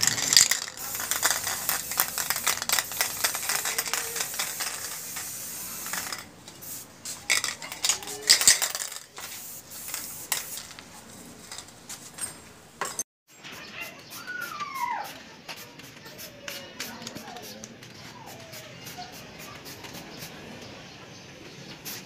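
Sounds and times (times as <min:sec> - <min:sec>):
metallic clinking and rattling: 0:00.0 - 0:13.0
hiss: 0:00.5 - 0:07.3, 0:21.7 - 0:22.0.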